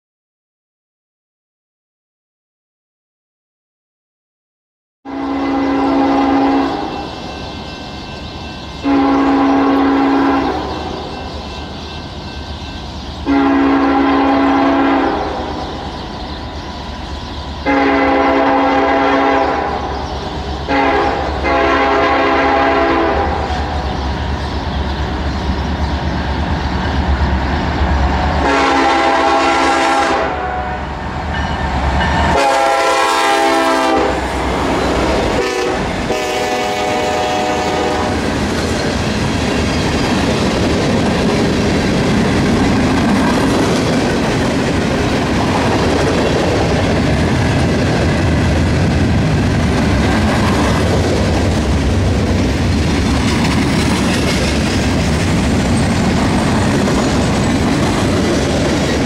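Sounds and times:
locomotive air horn blasts: 5.1 - 7.0, 8.8 - 11.0, 13.3 - 15.6, 17.7 - 19.9, 20.7 - 23.5, 28.4 - 31.1, 32.3 - 34.3, 35.3 - 38.2
train engines and wheels rumbling: 5.1 - 59.0.

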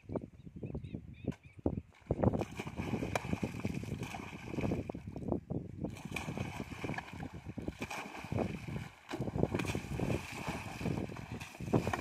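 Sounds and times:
wind buffeting microphone: 0.0 - 12.0
manure splashing into water: 6.0 - 12.0.

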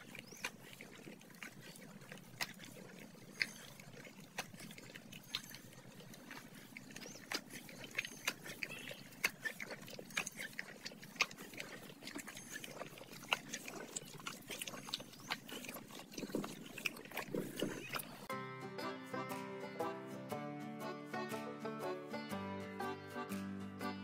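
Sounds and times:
horse licking salt block: 0.3 - 18.2.

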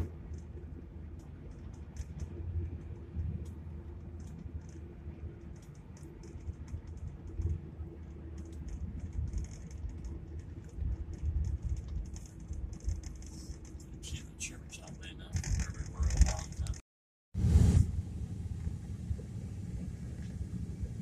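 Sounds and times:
road and engine rumble: 0.0 - 21.0
light clicks and ticks: 0.3 - 16.8.

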